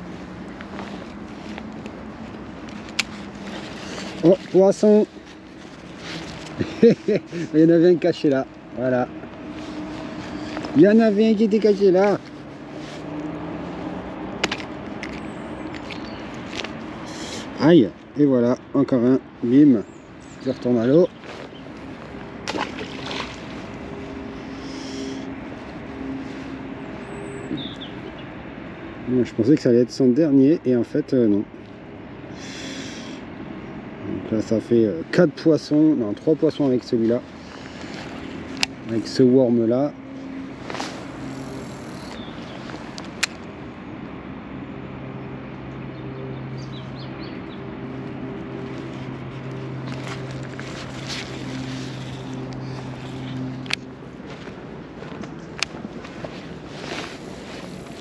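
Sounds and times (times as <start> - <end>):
low engine hum: 0.0 - 58.0
bird chirps: 26.9 - 28.3, 42.0 - 42.7.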